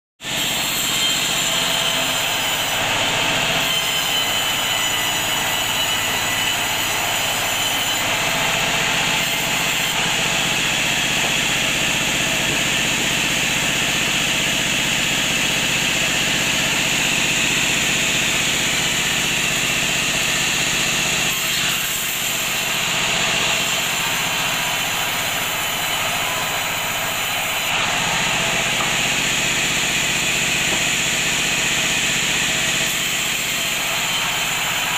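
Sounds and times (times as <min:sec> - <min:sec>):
bandsaw cutting wood: 0:00.2 - 0:34.9.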